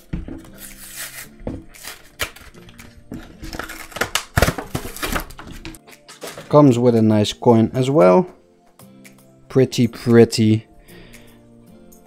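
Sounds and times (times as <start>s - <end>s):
plastic blister pack crackling: 1.8s - 6.6s.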